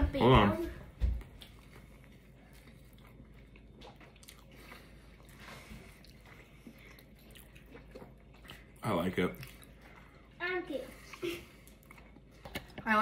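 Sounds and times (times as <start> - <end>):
faint biting and chewing: 1.2 - 10.2, 11.1 - 12.8.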